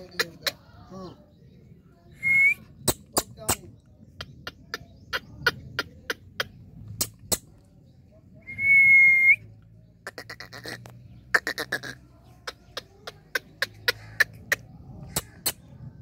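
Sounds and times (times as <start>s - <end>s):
clear whistles: 2.2s - 2.7s, 8.4s - 9.5s.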